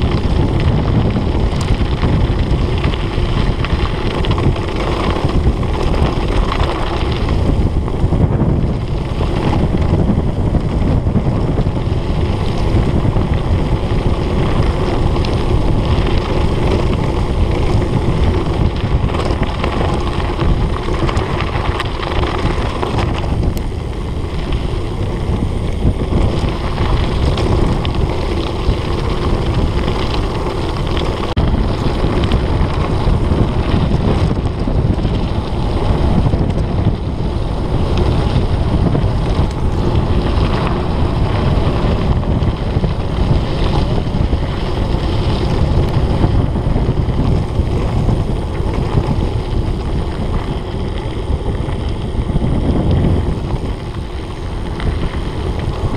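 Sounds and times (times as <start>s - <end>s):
bike knocks and rattles: 0.0s - 55.9s
tyres rumbling on dirt: 0.0s - 55.9s
wind buffeting microphone: 0.0s - 55.9s.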